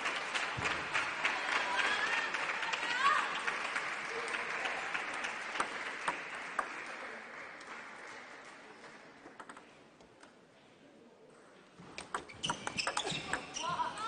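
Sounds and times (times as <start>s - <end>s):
applause: 0.0s - 9.3s.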